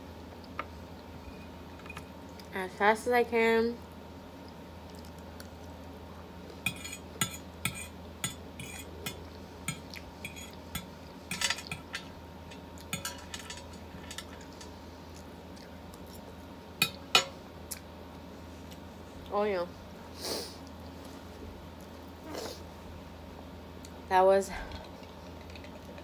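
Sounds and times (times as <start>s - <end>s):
fork clinking and scraping on plate: 6.7s - 14.7s.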